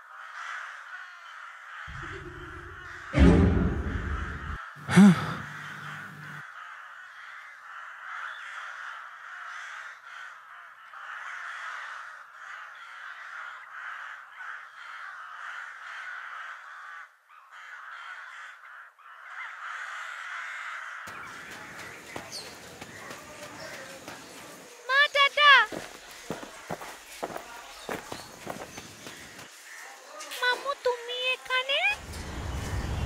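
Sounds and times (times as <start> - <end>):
crows cawing: 0.0 - 31.9
deep background sound: 1.9 - 6.4.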